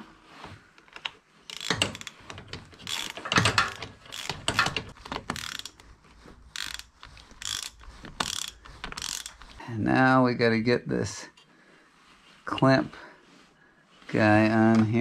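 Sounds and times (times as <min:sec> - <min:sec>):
socket ratchet clicking: 0:01.5 - 0:05.8, 0:06.5 - 0:09.4.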